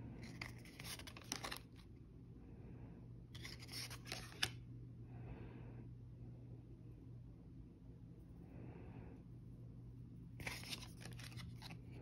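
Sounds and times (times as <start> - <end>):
cards rustling: 0.2 - 1.9, 3.4 - 4.6, 10.4 - 12.0.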